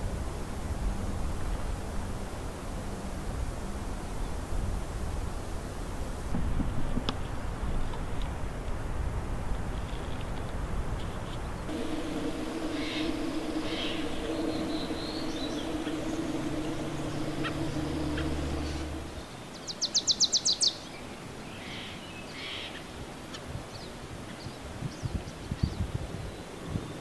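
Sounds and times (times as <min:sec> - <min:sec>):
steady low hum: 0:11.7 - 0:19.3.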